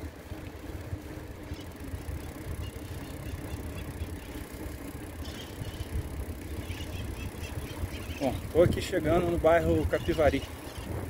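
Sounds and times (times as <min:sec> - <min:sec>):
bicycle tyre noise: 0:00.0 - 0:11.0
wind on microphone: 0:05.3 - 0:11.0.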